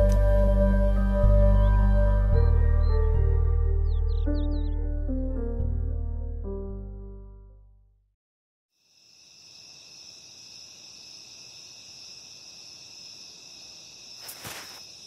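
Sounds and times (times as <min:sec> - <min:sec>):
crickets and insects chirring: 0:08.8 - 0:15.0.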